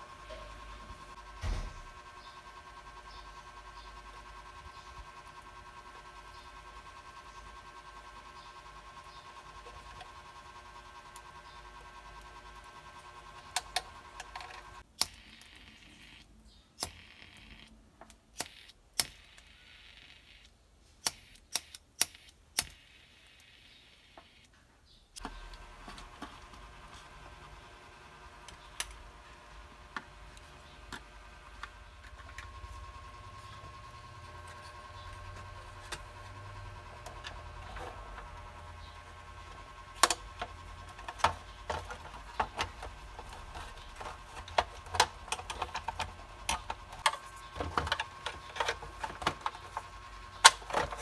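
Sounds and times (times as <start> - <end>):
faint steady hum: 0.0 - 51.0
clicks of handling wires and plastic: 40.0 - 51.0.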